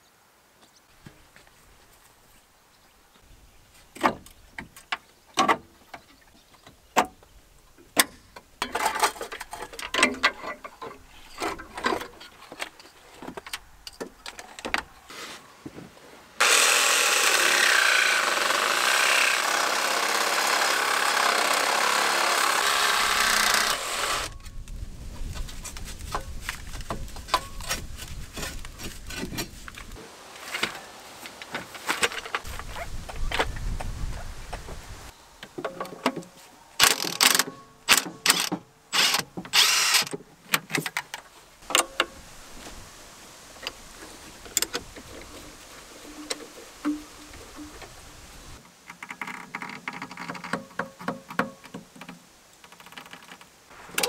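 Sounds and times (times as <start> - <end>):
power saw cutting steel pipe: 16.4 - 24.4.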